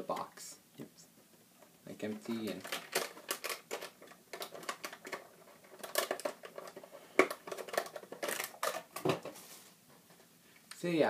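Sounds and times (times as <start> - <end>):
cardboard packaging rustling: 2.0 - 9.8.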